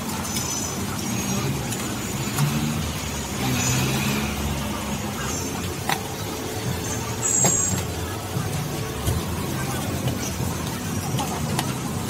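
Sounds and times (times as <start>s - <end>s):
road traffic passing: 0.0s - 12.0s.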